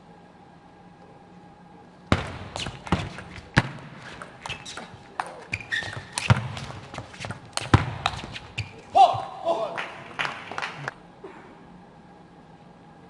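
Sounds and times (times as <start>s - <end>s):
shoes squeaking on floor: 2.2s - 9.3s.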